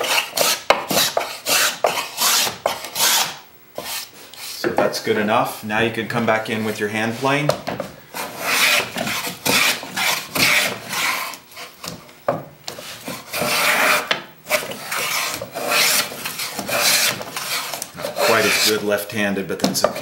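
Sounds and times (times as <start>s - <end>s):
hand plane rasping on wood: 0.0s - 4.8s, 8.1s - 12.0s, 12.7s - 18.9s.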